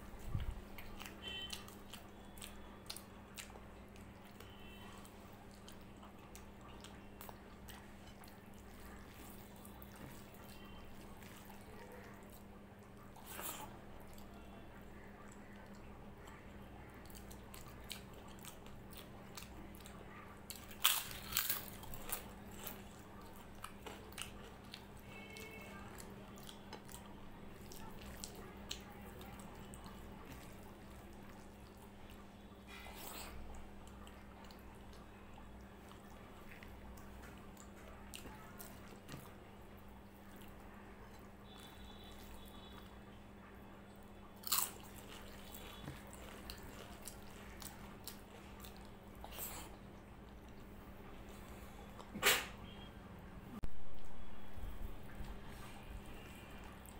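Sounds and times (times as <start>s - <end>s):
soft chewing and biting: 0.0s - 52.8s, 53.6s - 56.9s
sharp food crunches: 20.5s - 22.8s, 44.4s - 49.7s.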